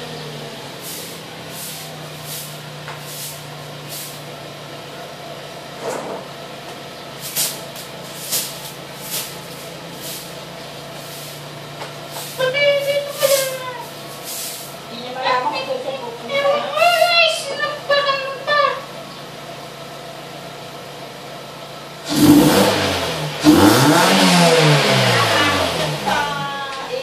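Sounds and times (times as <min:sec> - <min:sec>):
car engine idling: 0:00.0 - 0:27.0
hissy exhaust puffs: 0:00.6 - 0:04.6, 0:06.8 - 0:14.9.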